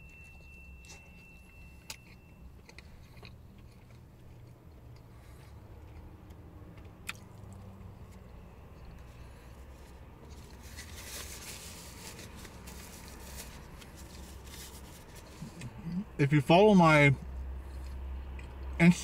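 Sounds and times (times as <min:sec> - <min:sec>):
low steady hum: 0:00.0 - 0:19.0
paper wrapper rustling: 0:10.3 - 0:15.4.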